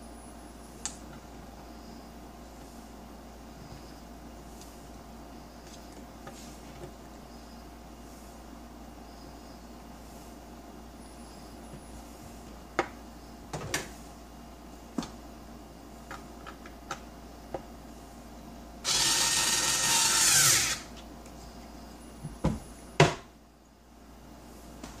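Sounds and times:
power drill driving screw: 18.8s - 20.9s.

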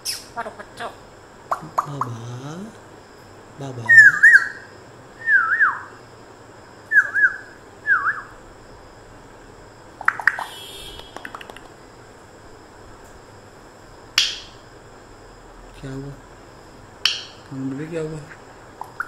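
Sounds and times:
parrot whistling: 3.9s - 5.9s, 6.9s - 8.4s
parrot clicks: 11.0s - 11.8s, 14.2s - 14.6s, 17.0s - 17.5s.

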